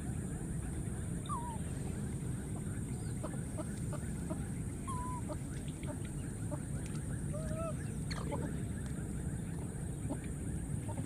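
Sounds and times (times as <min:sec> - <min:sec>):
low background noise: 0:00.0 - 0:11.0
animal peeps and warbling calls: 0:03.1 - 0:05.4.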